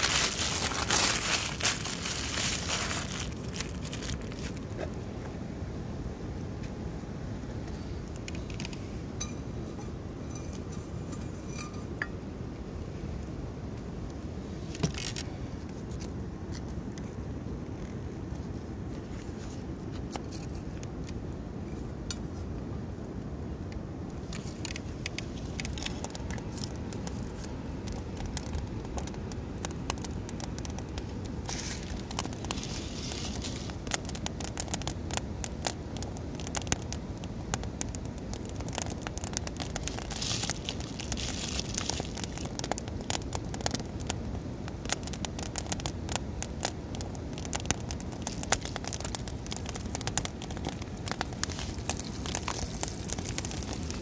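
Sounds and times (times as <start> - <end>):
wood fire crackling: 0.0 - 18.5, 24.0 - 54.0.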